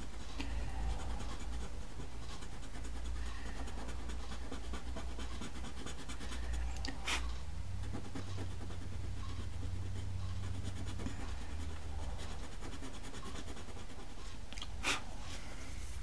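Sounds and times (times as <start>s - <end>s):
eraser scratching on paper: 0.0s - 15.1s.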